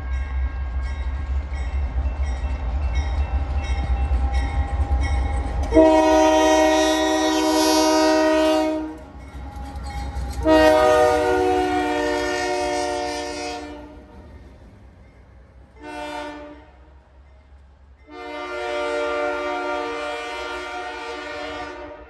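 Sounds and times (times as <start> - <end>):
locomotive air horn chord: 5.7 - 9.1, 10.4 - 14.0, 15.8 - 16.8, 18.1 - 22.0.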